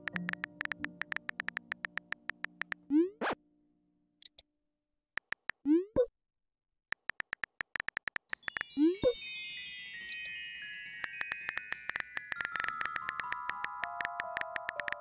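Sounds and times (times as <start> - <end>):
keyboard tap clicks: 0.0 - 2.8, 5.2 - 5.6, 6.9 - 8.6, 11.1 - 15.0
rising message pop: 11.1 - 15.0.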